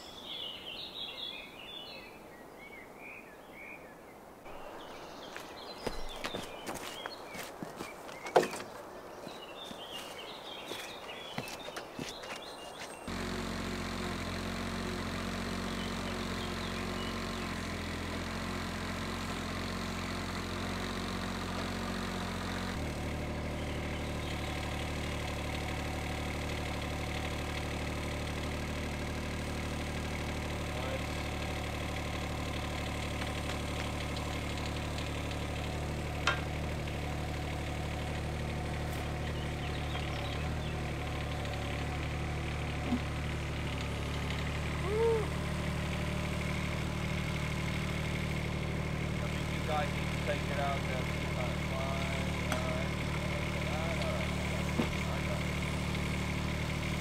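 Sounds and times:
excavator diesel engine running: 9.5 - 57.0.

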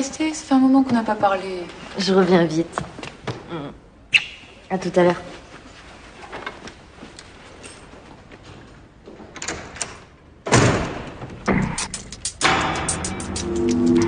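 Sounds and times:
door shutting with heavy thud: 10.4 - 11.6.

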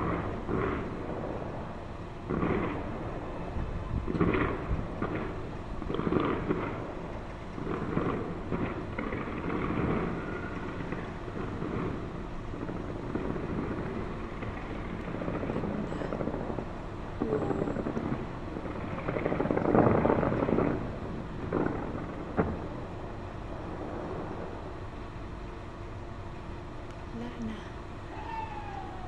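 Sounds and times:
fireworks booming and crackling: 0.0 - 29.0
sharp firework bang: 17.2 - 22.8.

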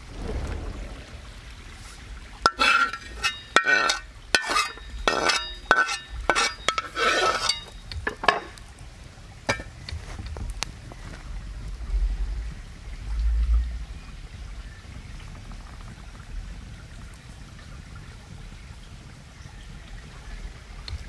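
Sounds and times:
metal pot clinking and scraping: 2.4 - 8.6, 9.5 - 9.7.

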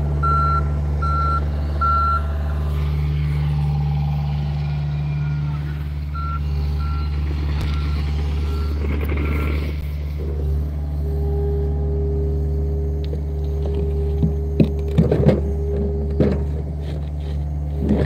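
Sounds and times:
excavator diesel engine running: 0.0 - 18.0
steady whine: 0.0 - 18.0
backup alarm beeping: 0.2 - 2.3, 6.1 - 9.8.

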